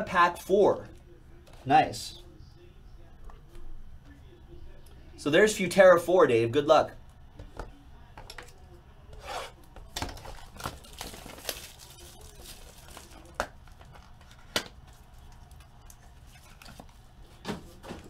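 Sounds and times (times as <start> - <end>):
plastic wrap and paper tearing: 10.2 - 15.2.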